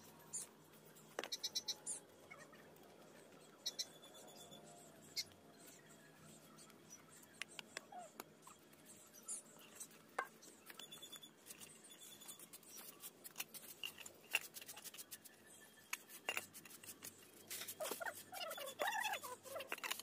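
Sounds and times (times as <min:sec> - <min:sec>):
small hard objects clicking: 0:15.9 - 0:20.0.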